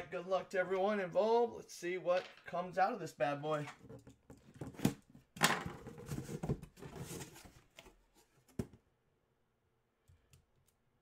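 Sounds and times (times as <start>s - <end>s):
cardboard scraping and rustling: 5.6s - 8.7s.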